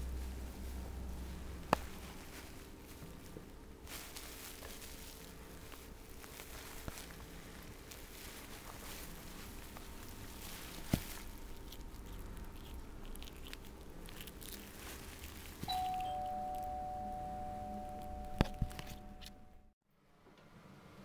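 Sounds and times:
shredded paper rustling: 0.0s - 16.8s
two-note doorbell chime: 15.7s - 19.4s.

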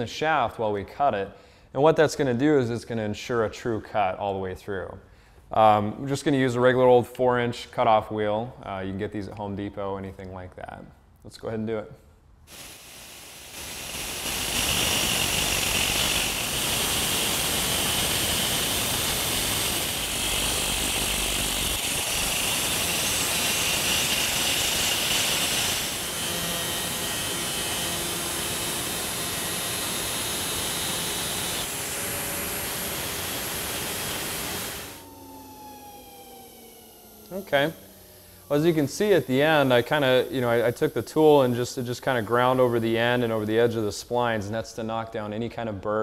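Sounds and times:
angle grinder cutting metal: 12.5s - 43.9s.

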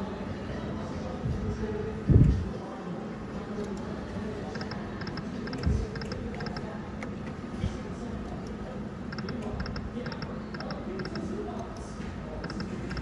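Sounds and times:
quick triple clicks: 12.4s - 13.0s.

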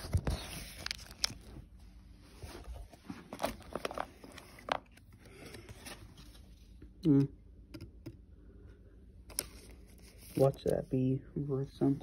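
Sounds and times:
cards clicking and rustling: 0.0s - 1.5s, 3.3s - 6.4s.

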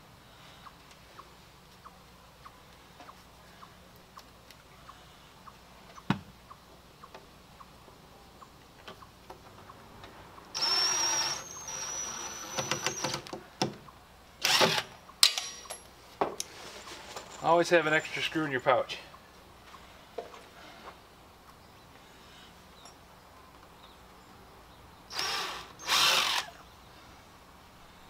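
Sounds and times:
cordless drill driving screws: 10.6s - 13.3s, 14.4s - 14.9s, 25.1s - 26.6s.

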